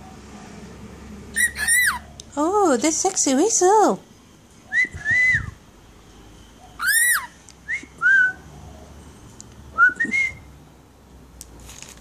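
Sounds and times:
parrot whistling: 1.3 - 2.0, 6.8 - 8.4.

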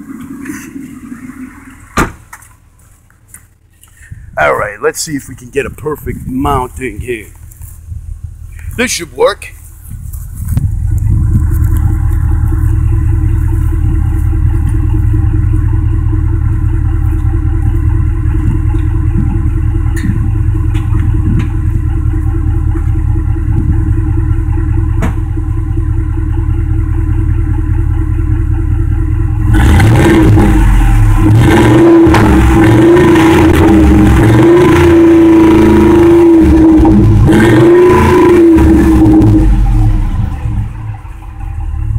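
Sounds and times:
truck exhaust rumbling: 0.0 - 41.9
engine revving: 28.8 - 41.9.

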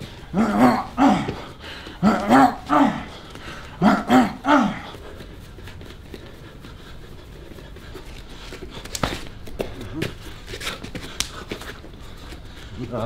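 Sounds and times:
man grunting: 0.2 - 3.2, 3.8 - 5.0.

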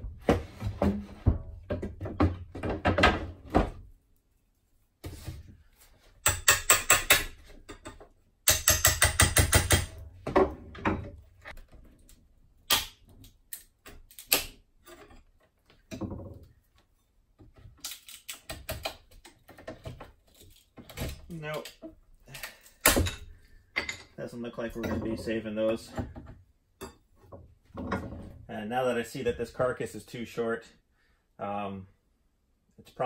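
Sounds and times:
wood knocks and clatter: 0.0 - 3.9, 6.2 - 12.1, 14.8 - 22.0, 22.8 - 26.5, 27.2 - 28.5
hammer tapping metal pry tool: 6.2 - 10.0.

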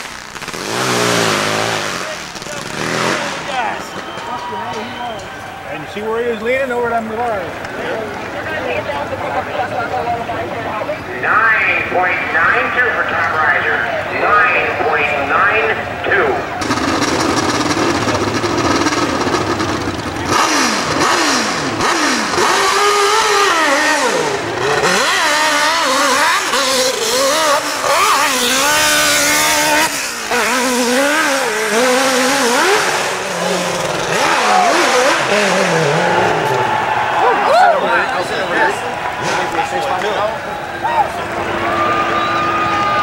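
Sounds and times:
motorcycle engine revving hard: 0.0 - 4.2, 16.1 - 37.2.

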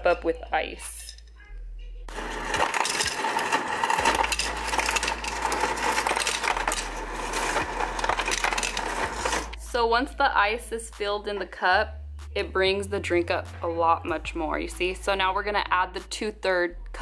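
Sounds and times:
ice cubes clattering into glass: 2.1 - 9.5.

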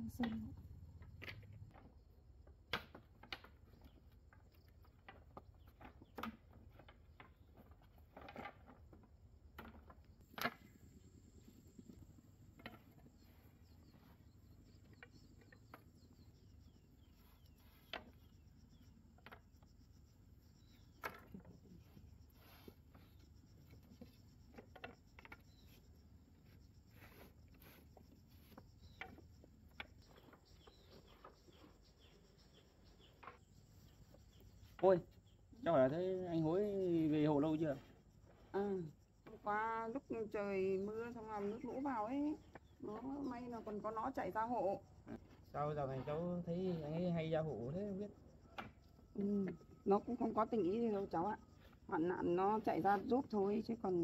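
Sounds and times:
wooden poles knocking together: 1.0 - 10.7, 20.9 - 21.5, 23.6 - 25.5.

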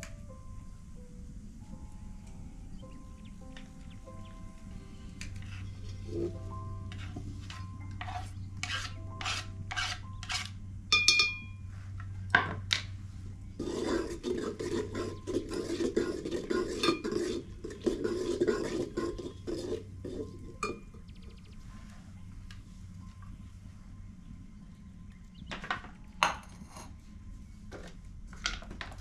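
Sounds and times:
steady low hum: 0.0 - 29.0
utensils scraping metal pot: 5.2 - 11.5, 13.6 - 20.9
ladle stirring in pot: 5.3 - 11.4, 13.6 - 20.9
metal clang ringing: 10.9 - 11.6.

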